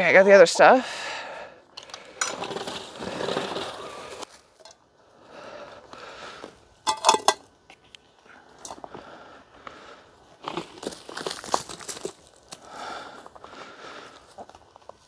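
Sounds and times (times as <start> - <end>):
rustling and crunching of treats: 1.9 - 4.7, 10.4 - 15.0.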